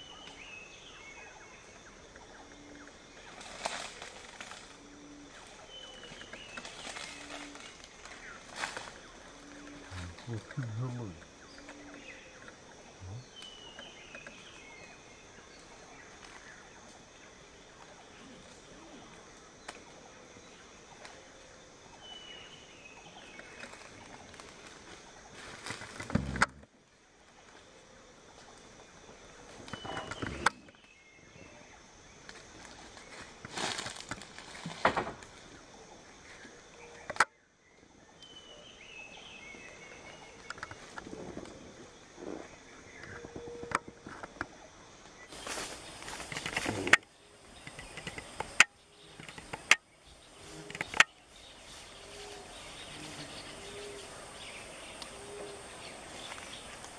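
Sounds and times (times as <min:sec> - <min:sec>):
grass rustling: 0:02.9 - 0:10.6, 0:23.3 - 0:26.6, 0:32.2 - 0:35.6, 0:43.2 - 0:54.1
faint clicks: 0:46.0 - 0:49.8.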